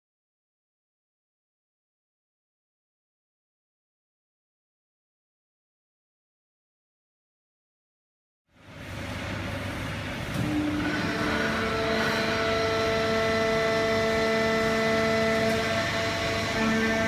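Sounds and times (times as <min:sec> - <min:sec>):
baling press machine hum: 0:08.5 - 0:17.0.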